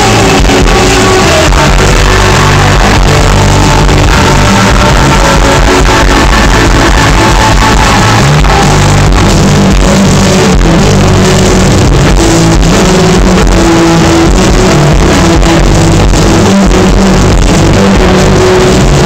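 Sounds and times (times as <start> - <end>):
distorted live rock band: 0.0 - 19.0
held bass notes: 0.0 - 19.0.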